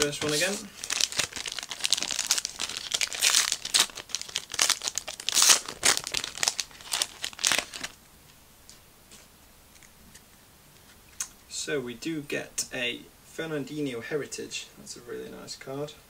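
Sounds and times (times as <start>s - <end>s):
wrapper crinkling and tearing: 0.0s - 8.0s
faint clicks of cards handled: 8.2s - 11.4s.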